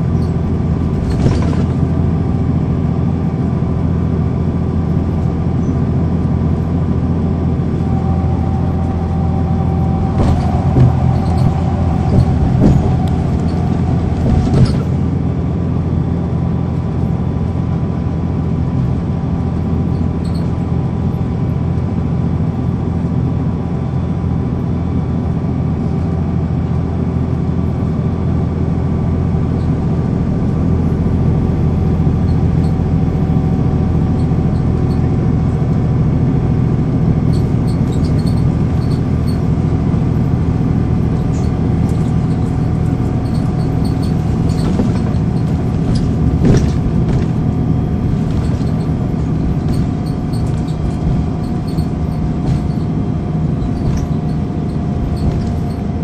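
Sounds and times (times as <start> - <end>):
bus diesel engine drone: 0.0 - 56.0.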